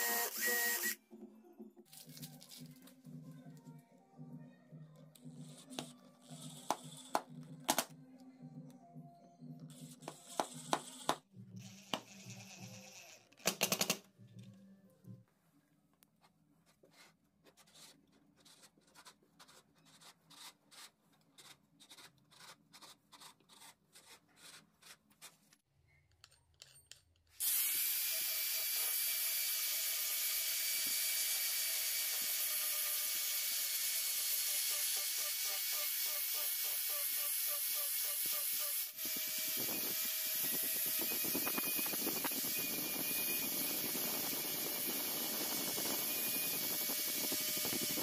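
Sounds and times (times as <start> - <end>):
angle grinder grinding: 0.0 - 1.0, 27.4 - 48.0
marker scratching on wood: 16.7 - 25.4.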